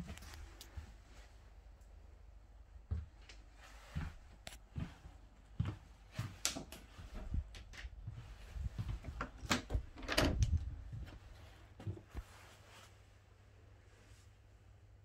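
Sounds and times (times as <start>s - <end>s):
door handle and latch clicking: 9.3s - 10.7s.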